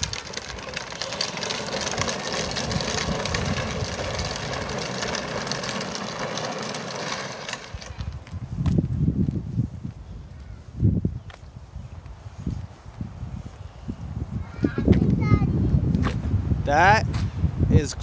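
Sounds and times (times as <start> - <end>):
toy vehicle motor whirring: 0.0 - 8.4.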